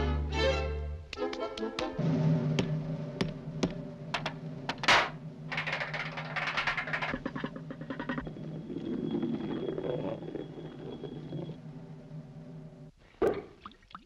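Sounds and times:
object rolling on wooden boards: 0:04.1 - 0:09.4
rattling clatter in drainpipe: 0:04.7 - 0:07.5.

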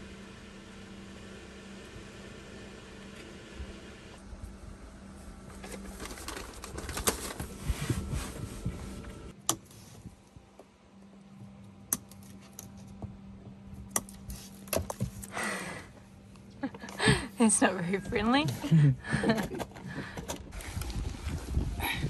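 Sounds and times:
cables rustling and clattering: 0:05.4 - 0:09.3.

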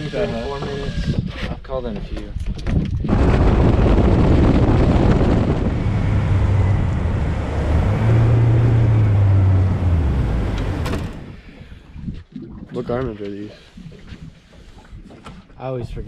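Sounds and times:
wind noise on microphone: 0:00.0 - 0:16.0
outboard motor hum: 0:03.1 - 0:12.3.

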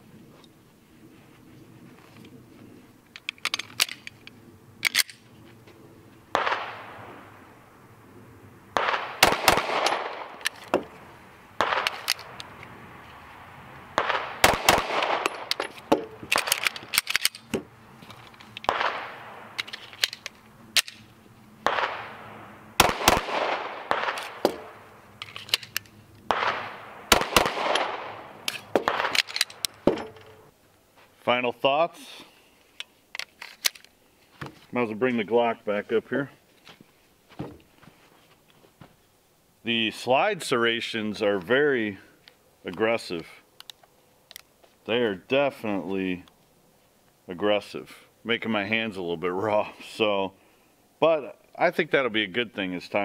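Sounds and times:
metallic handling clicks: 0:03.1 - 0:05.2, 0:11.8 - 0:12.7, 0:15.2 - 0:18.8, 0:19.6 - 0:21.1, 0:25.2 - 0:26.0, 0:27.7 - 0:30.5, 0:32.6 - 0:34.0, 0:43.6 - 0:44.5
pistol shots: 0:06.3 - 0:07.0, 0:08.8 - 0:10.5, 0:11.6 - 0:12.1, 0:14.0 - 0:16.6, 0:18.7 - 0:19.6, 0:21.6 - 0:24.8, 0:26.3 - 0:30.0
faint gunshots: 0:06.3 - 0:07.1, 0:08.8 - 0:10.4, 0:11.6 - 0:12.0, 0:14.0 - 0:15.5, 0:18.7 - 0:19.5, 0:21.6 - 0:24.8, 0:26.3 - 0:29.2.

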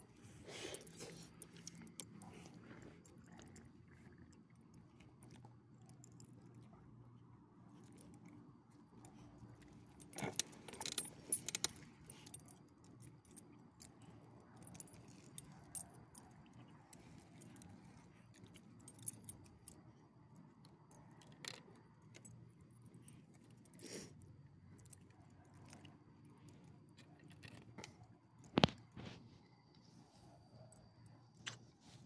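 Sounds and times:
dog collar tags jingling: 0:09.7 - 0:19.8.

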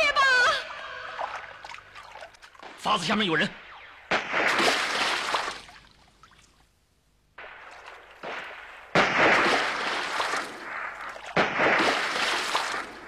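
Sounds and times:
gunfire bursts: 0:03.6 - 0:05.6, 0:07.4 - 0:13.0.

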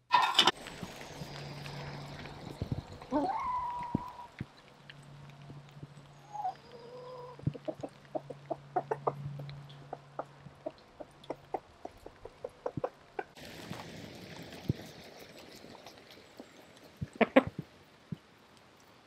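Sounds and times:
hens clucking: 0:06.4 - 0:13.4, 0:17.0 - 0:17.6.

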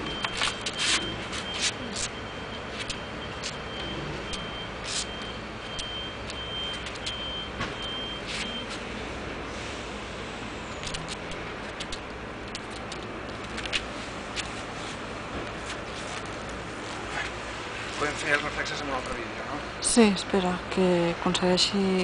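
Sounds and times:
high-pitched electronic beep: 0:00.0 - 0:08.7
traffic noise: 0:00.0 - 0:22.0
sharp clicks: 0:10.8 - 0:13.8.

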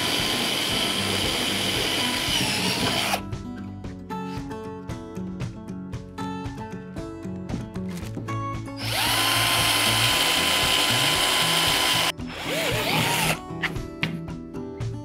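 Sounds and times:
cordless drill boring plastic: 0:00.0 - 0:03.2, 0:08.8 - 0:13.4.

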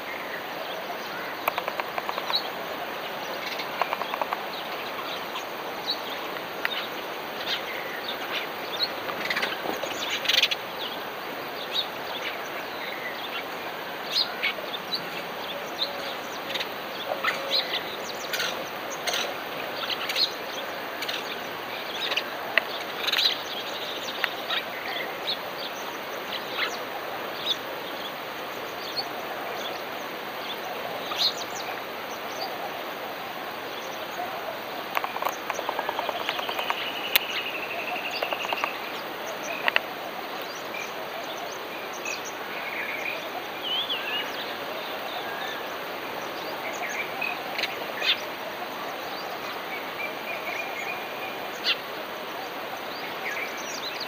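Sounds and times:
steady background hiss: 0:00.0 - 0:54.0
bird chirps and calls: 0:35.0 - 0:39.8.

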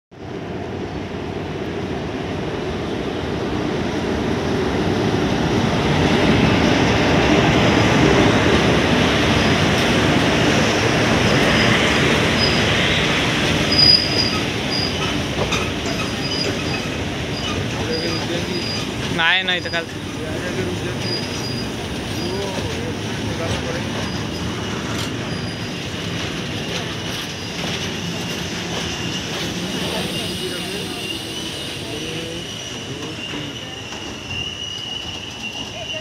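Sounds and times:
train wheels rumbling on rails: 0:00.2 - 0:36.0
high wheel squeals: 0:11.3 - 0:36.0.

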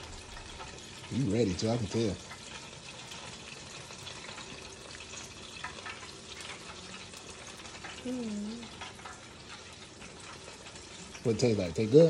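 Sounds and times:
child humming: 0:08.0 - 0:08.7.

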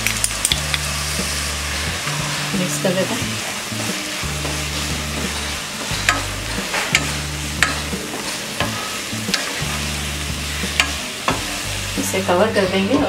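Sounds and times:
vegetables sizzling in a pan: 0:00.0 - 0:13.0
spatula scraping and knocking pan: 0:02.1 - 0:12.1.

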